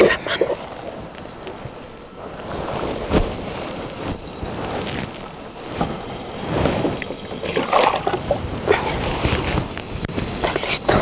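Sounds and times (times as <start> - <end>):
wind buffeting microphone: 0.0 - 11.0
water sloshing in plastic basin: 7.0 - 8.4.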